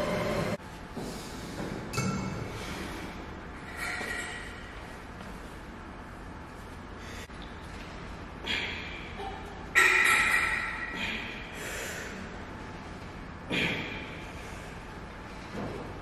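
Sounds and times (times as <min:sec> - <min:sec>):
cable machine clanks: 0:09.7 - 0:11.3.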